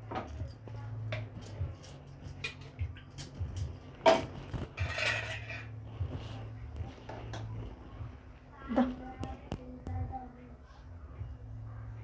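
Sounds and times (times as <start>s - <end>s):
utensils clinking against a pot: 0.0s - 5.8s
low steady hum: 0.0s - 12.0s.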